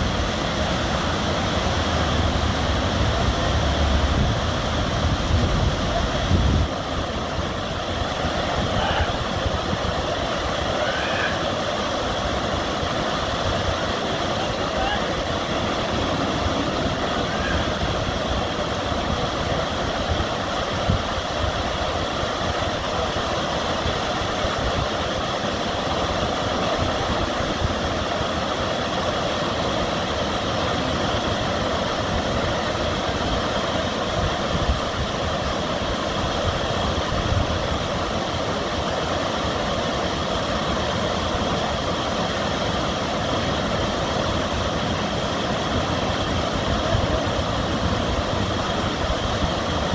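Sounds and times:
river water pouring over weir: 0.0s - 49.9s.

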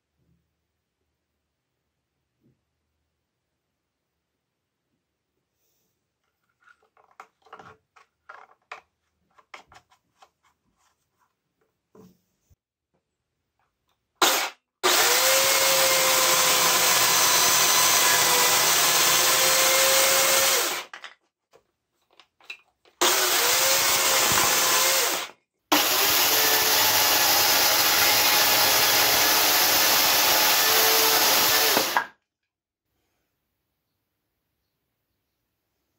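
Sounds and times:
electric chainsaw cutting wood: 14.2s - 20.9s, 23.0s - 32.2s.

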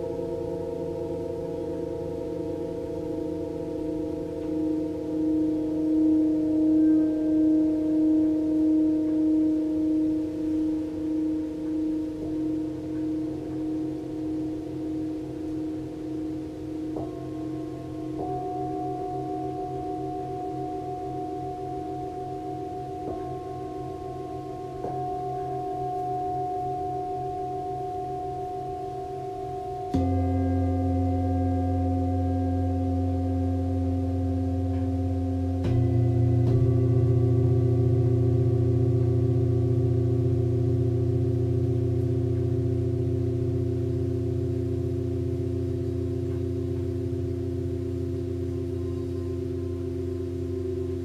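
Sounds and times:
singing bowls ringing: 0.0s - 51.0s.

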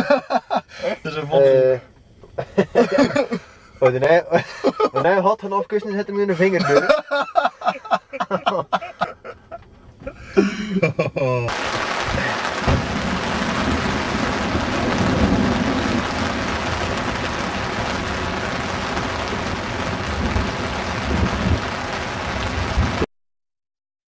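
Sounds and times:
heavy rain falling: 0.0s - 23.1s
thunder rumbling: 11.5s - 23.1s.

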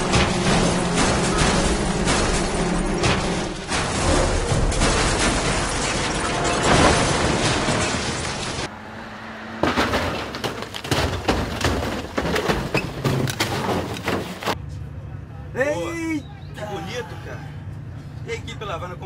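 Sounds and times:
vehicle tumbling impacts: 0.0s - 8.7s, 9.4s - 14.6s.

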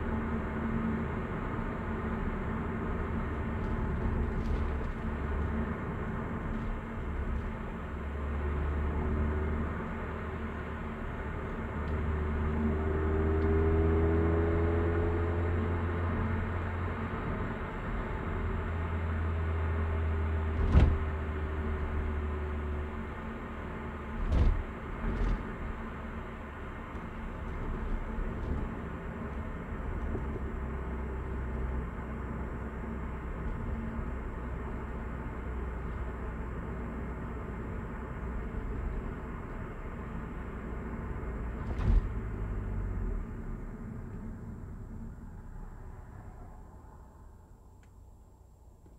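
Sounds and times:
car engine and road noise: 0.0s - 48.9s
sharp thumps: 20.6s - 21.1s.

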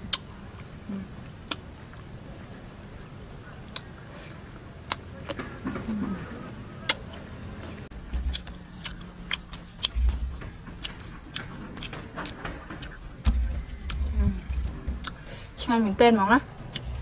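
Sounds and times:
dull low thumps: 7.8s - 17.0s
crispy chewing: 7.9s - 15.4s.

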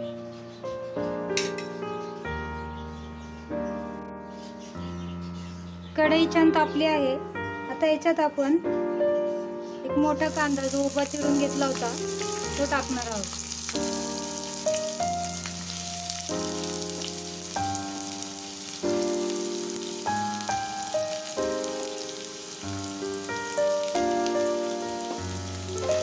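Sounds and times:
background music sustained chords: 0.0s - 26.0s
onions sizzling in hot oil: 10.1s - 26.0s.

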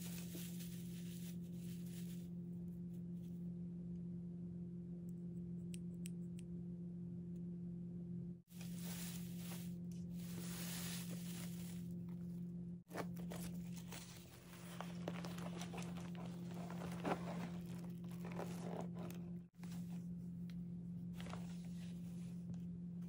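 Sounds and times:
hands crinkling shredded paper: 0.0s - 2.3s, 8.5s - 12.1s, 12.9s - 19.3s
steady low hum: 0.0s - 23.0s
canvas bag rustling: 8.6s - 12.0s, 12.9s - 19.4s.

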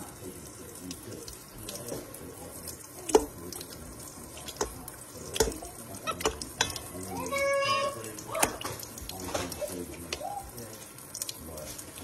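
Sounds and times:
tap running into metal bowl: 3.0s - 10.2s.

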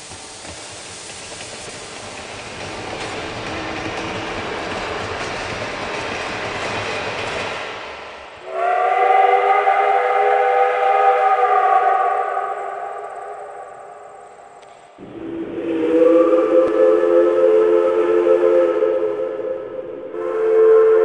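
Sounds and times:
steam train running: 0.0s - 21.0s
multi-chime steam whistle: 8.4s - 21.0s.

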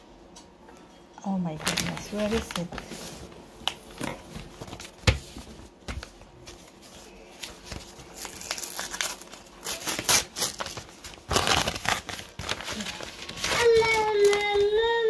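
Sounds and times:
papers rustling: 1.6s - 15.0s
paper envelope tearing: 7.4s - 15.0s.

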